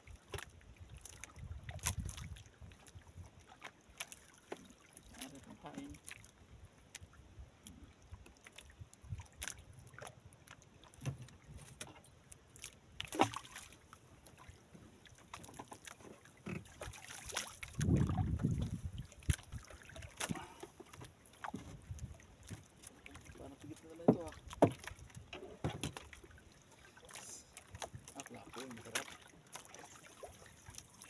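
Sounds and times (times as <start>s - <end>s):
knocks against wooden hull: 11.0s - 12.1s, 13.1s - 13.5s, 20.2s - 22.7s, 24.0s - 26.1s.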